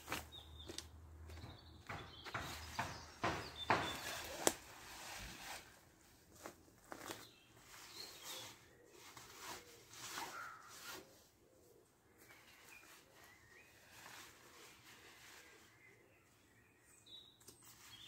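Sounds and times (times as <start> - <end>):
nylon fabric rustling: 3.9 - 11.1.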